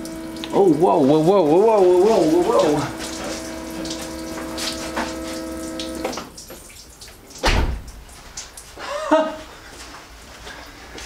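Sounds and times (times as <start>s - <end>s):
fuel pump whining: 0.0s - 6.4s
fuel spraying and splashing: 0.0s - 9.1s
heavy thump: 7.4s - 7.9s.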